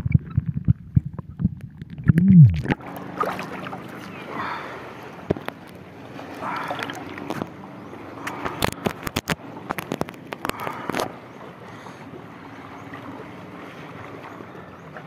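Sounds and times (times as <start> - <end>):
water sloshing at shore: 1.8 - 15.0
sharp clicks and knocks: 8.3 - 11.1.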